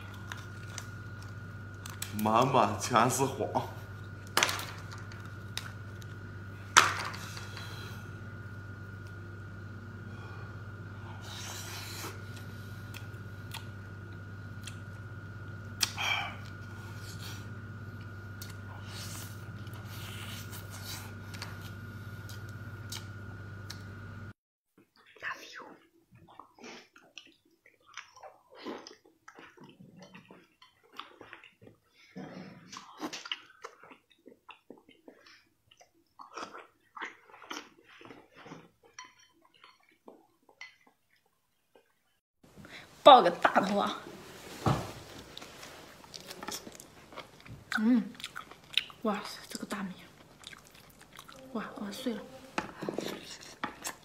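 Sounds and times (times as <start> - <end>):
steady electrical hum: 0.0 - 24.4, 42.5 - 54.0
wet chewing and smacking: 26.1 - 32.0, 32.7 - 42.0, 45.3 - 51.4.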